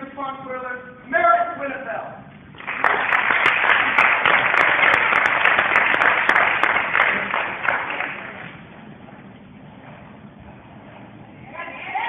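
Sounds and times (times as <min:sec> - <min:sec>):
audience applauding: 0:02.6 - 0:08.6.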